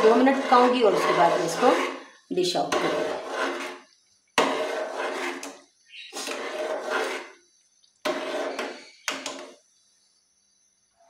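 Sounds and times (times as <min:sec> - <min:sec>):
spoon scraping metal pot: 0:00.0 - 0:07.4, 0:08.0 - 0:09.6.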